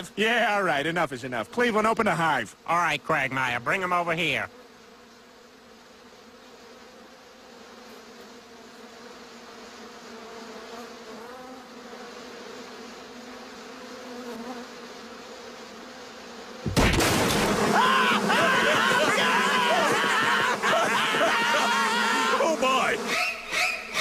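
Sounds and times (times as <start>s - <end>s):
bees buzzing: 0.0s - 24.0s
loud crash: 16.7s - 18.3s.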